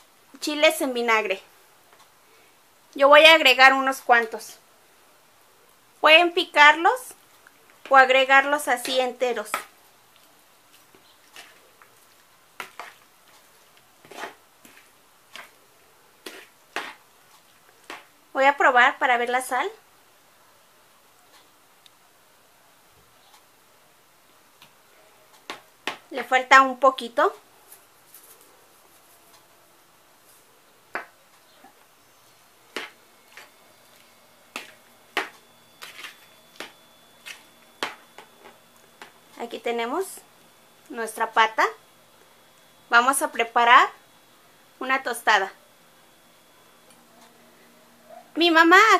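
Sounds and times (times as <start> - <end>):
spoon scraping a plastic bowl: 11.2 - 11.7, 12.6 - 13.4, 14.0 - 15.6, 16.2 - 17.0, 32.7 - 39.2.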